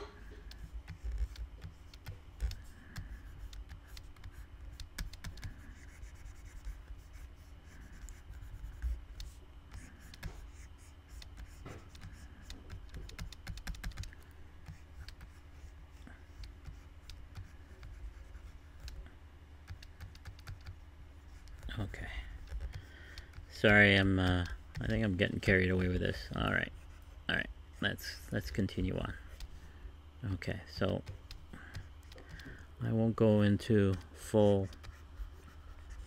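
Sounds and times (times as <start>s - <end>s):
scratchy pen strokes: 0.4s - 13.4s, 34.6s - 36.0s.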